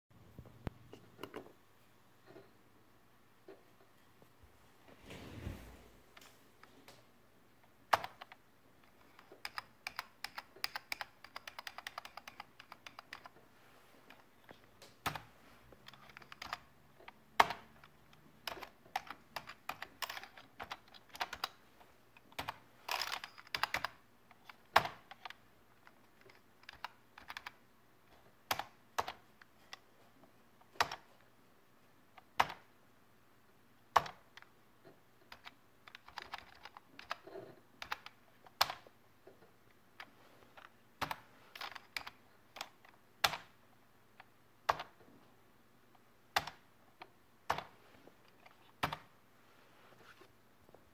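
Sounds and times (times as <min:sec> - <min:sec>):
computer keyboard keystrokes: 0:07.9 - 0:08.4, 0:09.1 - 0:13.3, 0:15.0 - 0:16.7, 0:17.4 - 0:21.6, 0:22.3 - 0:25.4, 0:26.3 - 0:27.6, 0:28.5 - 0:29.2, 0:35.3 - 0:37.2.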